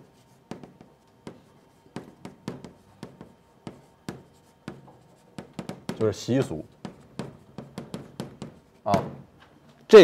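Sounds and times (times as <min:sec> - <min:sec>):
chalk tapping on blackboard: 0:00.0 - 0:09.2.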